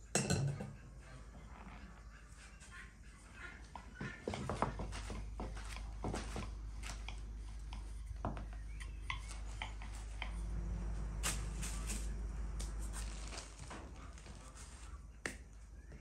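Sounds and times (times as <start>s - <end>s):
steady low hum: 0.0s - 16.0s
hands handling dough: 11.2s - 16.0s
plastic sheet crinkling: 12.7s - 15.0s.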